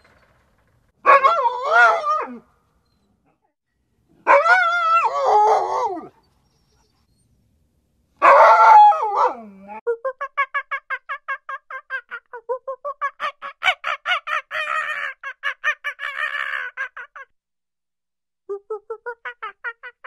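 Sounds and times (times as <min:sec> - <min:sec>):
dog howling: 0:01.0 - 0:02.4, 0:04.2 - 0:06.8, 0:08.2 - 0:09.8.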